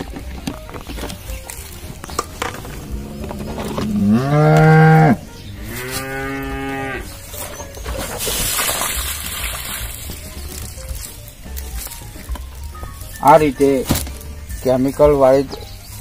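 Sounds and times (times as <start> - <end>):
cow mooing: 2.8 - 7.2.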